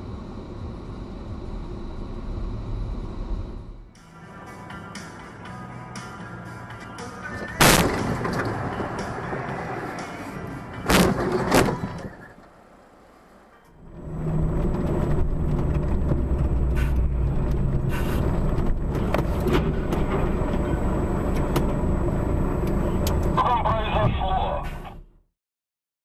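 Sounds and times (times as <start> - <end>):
engine and road drone in vehicle: 0.0 - 25.3
sharp bangs: 7.6 - 10.1, 10.8 - 12.1.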